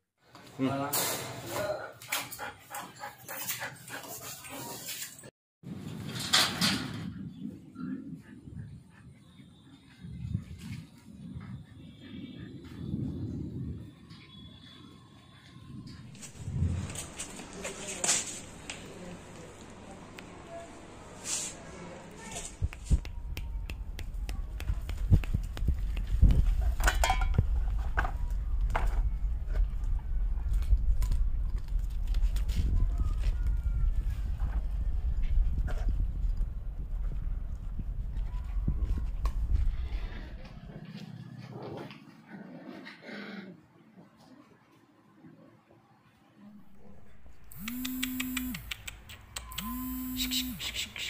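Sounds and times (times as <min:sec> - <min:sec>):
steady low rumble: 0:15.7 - 0:17.6, 0:22.6 - 0:40.8.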